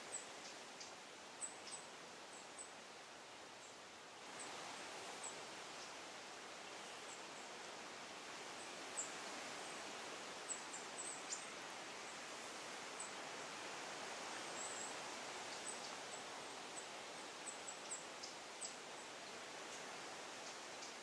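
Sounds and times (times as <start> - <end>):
forest ambience hiss: 0.0 - 21.0.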